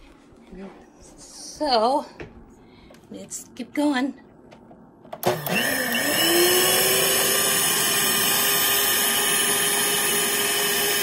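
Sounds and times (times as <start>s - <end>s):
stand mixer motor whine: 5.2s - 11.0s.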